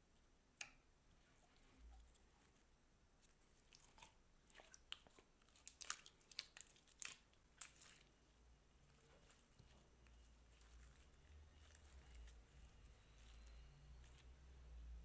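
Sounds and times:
slime crackling and popping: 4.8 - 8.1.

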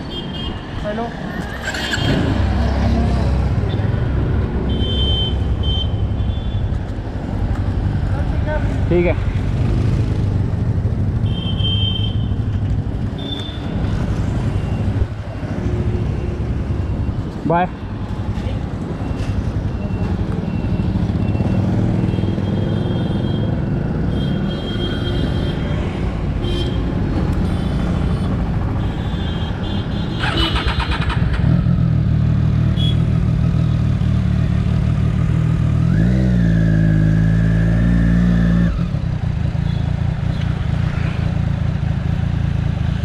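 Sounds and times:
motorcycle engine revving: 1.4 - 4.4, 8.9 - 11.2, 30.1 - 43.0.

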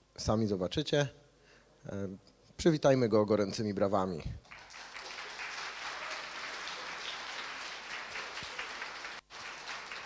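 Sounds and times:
audience applauding: 4.4 - 10.0.

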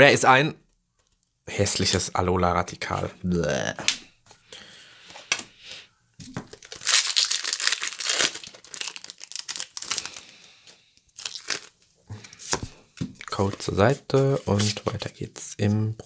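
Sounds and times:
foil wrapper crinkling: 6.5 - 10.4, 11.2 - 11.8.

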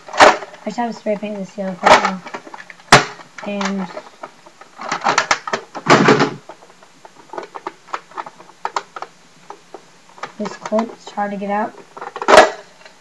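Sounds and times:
plastic toy gun clicking and rattling: 4.8 - 9.6, 12.0 - 13.0.

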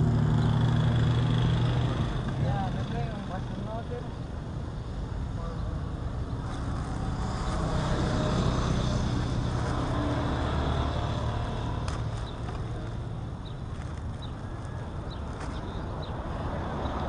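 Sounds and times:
vehicle engine passing by: 6.4 - 13.1.

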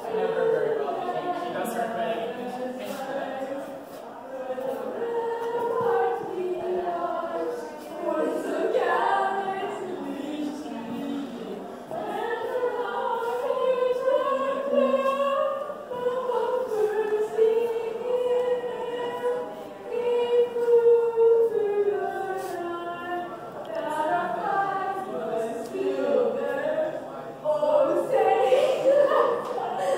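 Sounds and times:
choir singing long notes: 0.0 - 29.9.

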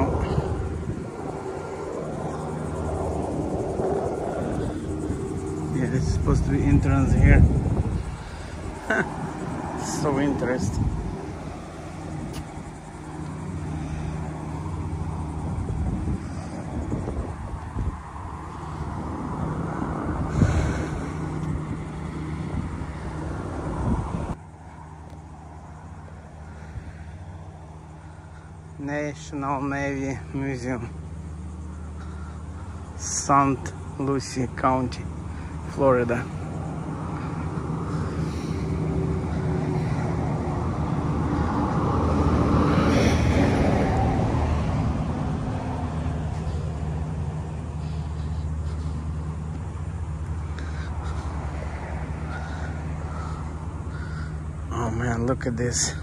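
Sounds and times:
wind buffeting microphone: 0.0 - 24.4
steady low hum: 0.0 - 56.0
vehicle driving past: 35.1 - 54.7.

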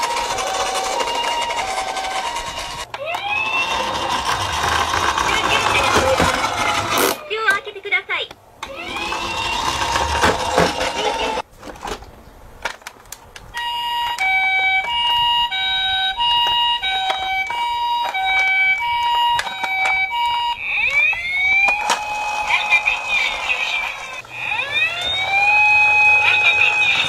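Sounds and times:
toy siren wailing: 0.0 - 7.2, 8.6 - 11.4, 13.6 - 27.0
two-tone hi-lo siren: 0.2 - 4.7, 8.7 - 10.0, 13.6 - 27.0.

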